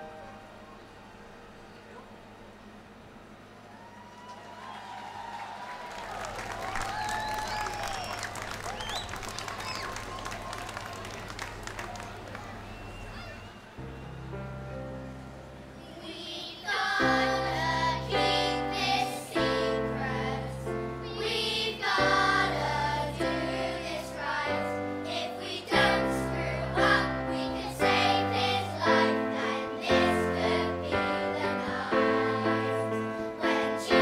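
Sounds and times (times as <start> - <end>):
children's choir singing: 15.8 - 34.0.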